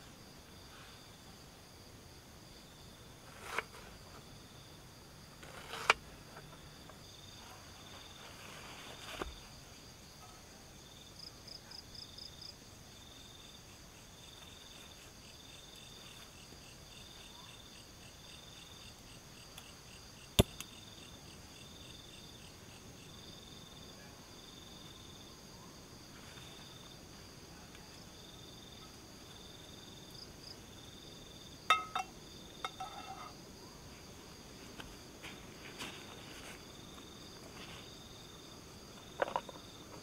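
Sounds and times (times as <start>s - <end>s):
crickets chirping: 0.0s - 40.0s
camp gear clicks and knocks: 31.7s - 33.4s, 39.0s - 40.0s.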